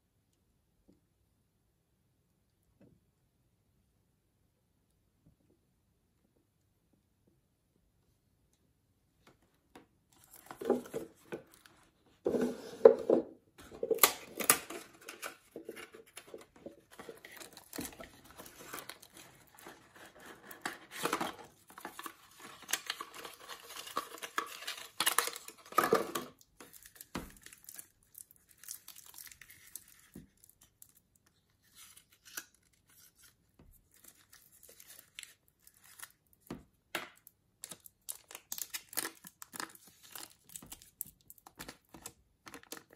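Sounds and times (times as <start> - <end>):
cardboard packaging handled: 10.2 - 27.6
plastic wrap crinkling: 13.6 - 36.3, 37.6 - 42.9.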